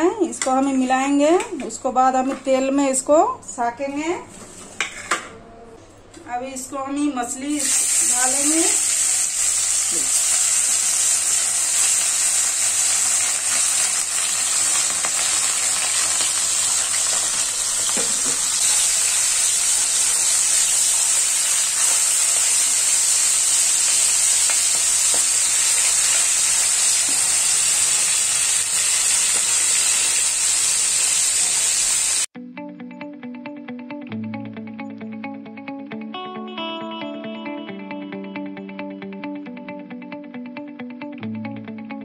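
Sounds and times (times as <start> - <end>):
fish sizzling in hot oil: 7.6 - 32.3.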